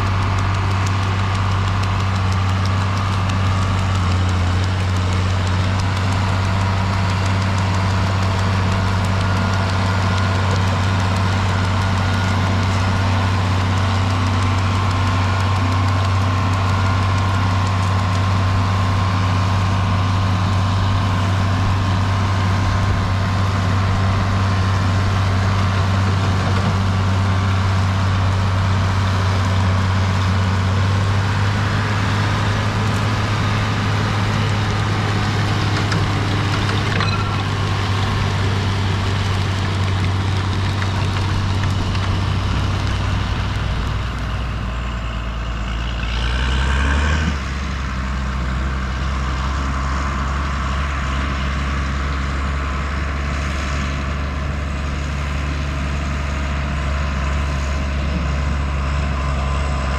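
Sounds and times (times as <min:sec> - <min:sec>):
diesel tractor engine under load: 0:00.0 - 0:59.9.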